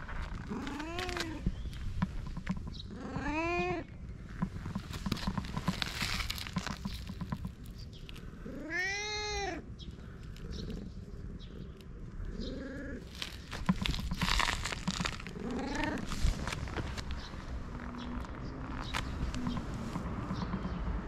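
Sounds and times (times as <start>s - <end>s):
rustling: 0.0s - 2.7s, 4.3s - 8.8s, 13.0s - 20.3s
cat meowing: 8.4s - 9.6s.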